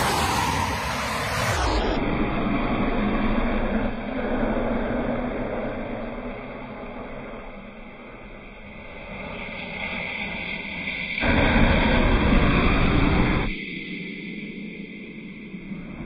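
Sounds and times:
loud rush of noise: 0:00.0 - 0:06.9, 0:11.0 - 0:13.6.

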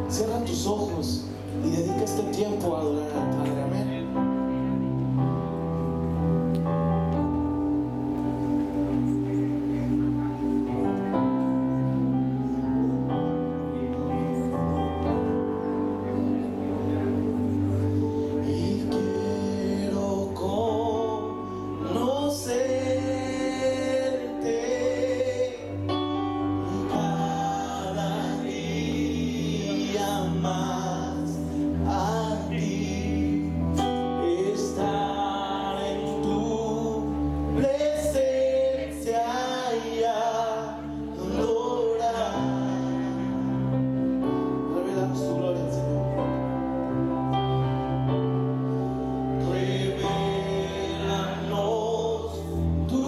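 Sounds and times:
man singing: 0:00.0 - 0:04.8, 0:17.8 - 0:46.9, 0:49.2 - 0:53.0
keyboard: 0:00.0 - 0:53.0.

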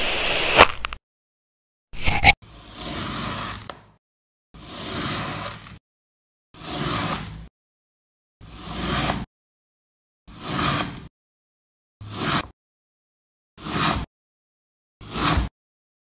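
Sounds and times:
knife slicing through sand: 0:02.0 - 0:03.6.

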